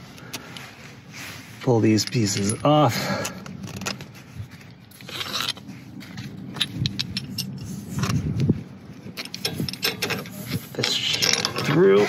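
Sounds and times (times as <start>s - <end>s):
metal parts scraping: 1.9s - 8.2s, 9.1s - 12.0s.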